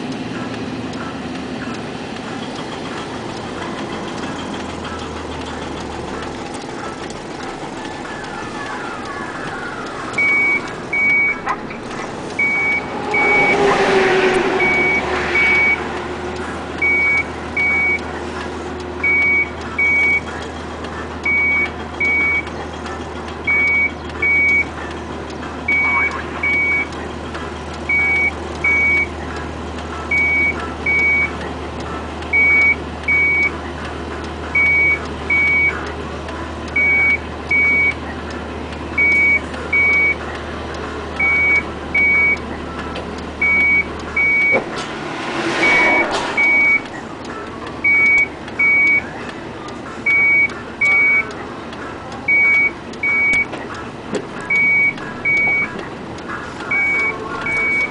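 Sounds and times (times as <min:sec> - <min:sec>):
reversing alarm beeping: 0:08.1 - 0:18.1, 0:19.0 - 0:20.3, 0:21.2 - 0:22.5, 0:23.4 - 0:24.8, 0:25.7 - 0:27.0, 0:27.9 - 0:29.4, 0:30.1 - 0:31.5, 0:32.3 - 0:33.7, 0:34.5 - 0:35.8, 0:36.8 - 0:38.0, 0:39.0 - 0:40.2, 0:41.2 - 0:42.7, 0:43.4 - 0:49.1, 0:50.0 - 0:51.4, 0:52.3 - 0:53.6, 0:54.5 - 0:55.8, 0:56.6 - 0:57.9
rush of noise: 0:11.4 - 0:16.9, 0:44.2 - 0:47.9.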